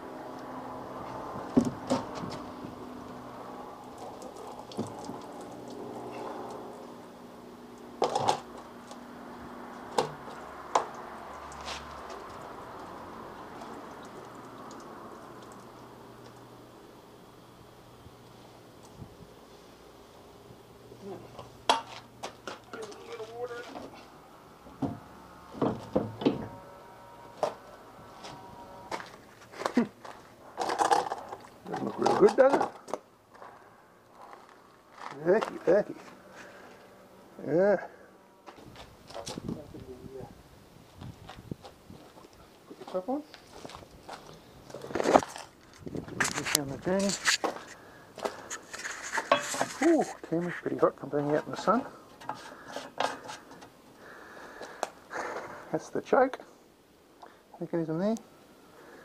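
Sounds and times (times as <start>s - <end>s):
low steady hum: 0.0s - 32.0s
clunks of outboard motor on crate: 24.7s - 26.6s
rustling: 43.4s - 50.6s.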